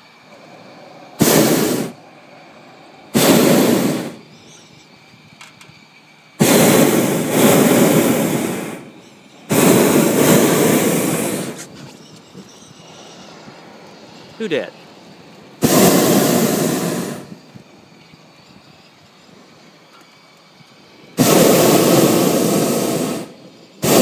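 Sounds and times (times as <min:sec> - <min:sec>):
propane burner blasts: 0:00.0 - 0:24.0.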